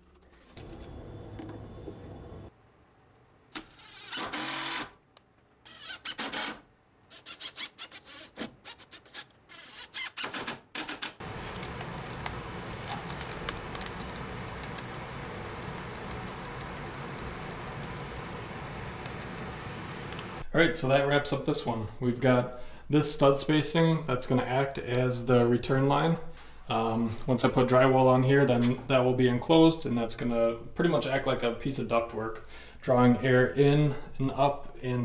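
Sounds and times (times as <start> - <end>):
drill driving screws into wood: 3.6 - 5.0, 5.7 - 11.2.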